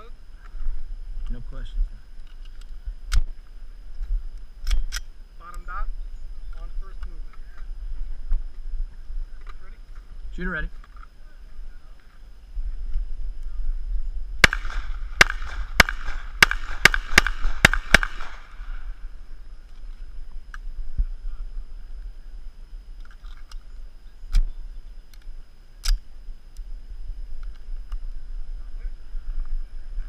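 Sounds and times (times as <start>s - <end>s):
pistol shots: 14.4s - 18.8s.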